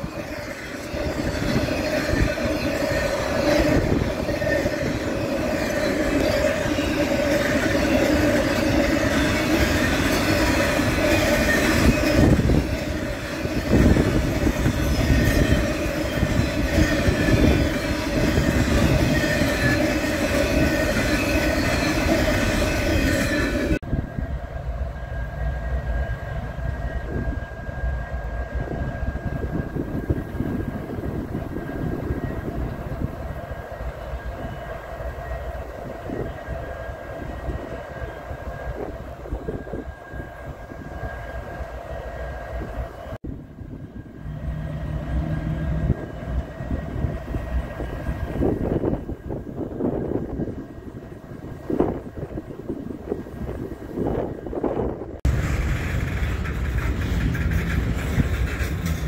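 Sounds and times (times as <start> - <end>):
freight train wheels rumbling: 0.0 - 59.0
diesel locomotives idling: 55.3 - 59.0.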